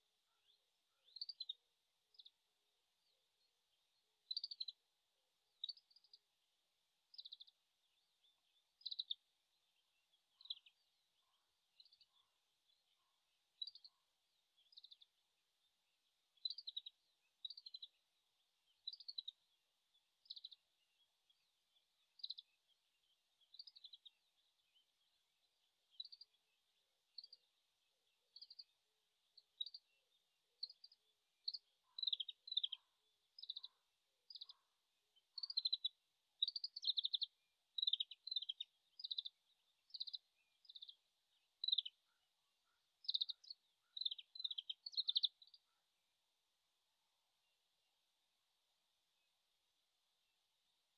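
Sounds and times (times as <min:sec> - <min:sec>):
distant bird chirping: 0:29.4 - 0:45.9.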